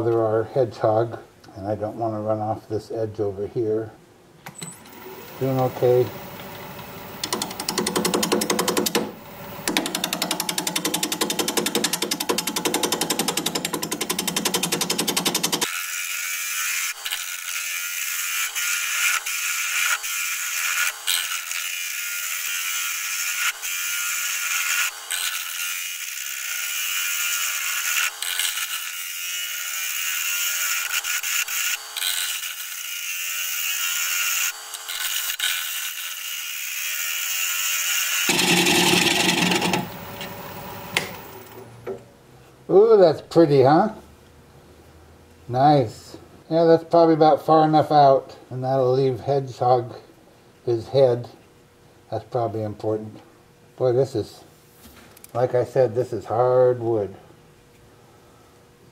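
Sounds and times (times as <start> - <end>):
gouge scraping wood on a lathe: 38.3 - 39.9.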